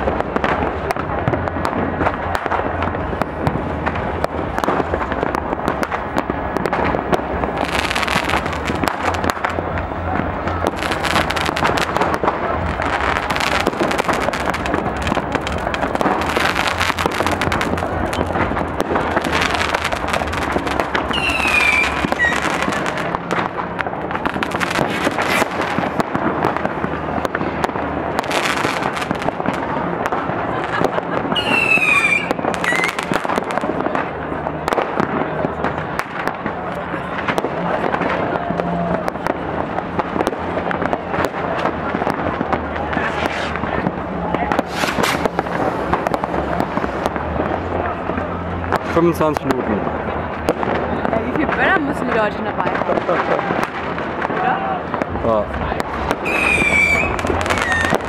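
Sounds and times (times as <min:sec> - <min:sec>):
firecrackers banging and crackling: 0:00.0 - 0:58.0
falling firework whistles: 0:21.1 - 0:22.8, 0:31.3 - 0:33.1, 0:43.0 - 0:43.6, 0:44.6 - 0:45.6, 0:56.2 - 0:58.0.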